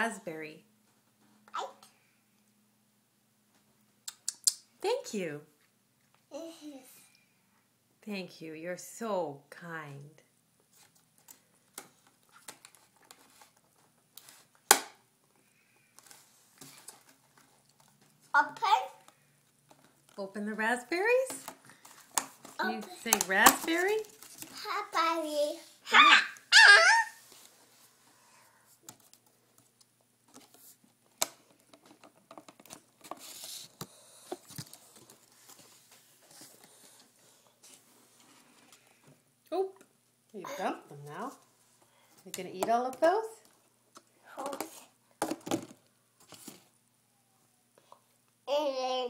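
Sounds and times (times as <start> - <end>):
plastic crinkle: 21.3 - 24.7.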